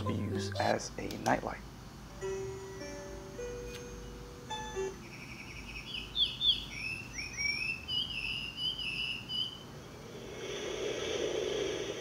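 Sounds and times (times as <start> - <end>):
bird chirps and whistles alarm: 5.0 - 9.7.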